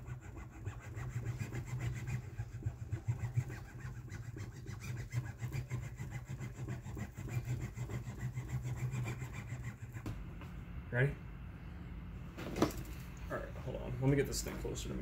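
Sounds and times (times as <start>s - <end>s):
tool scraping along mesh: 0.0s - 10.1s
low hum: 9.3s - 15.0s.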